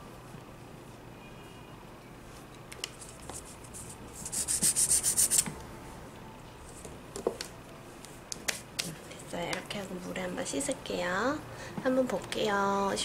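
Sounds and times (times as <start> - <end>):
nail file rubbing on fingernail: 2.9 - 5.5.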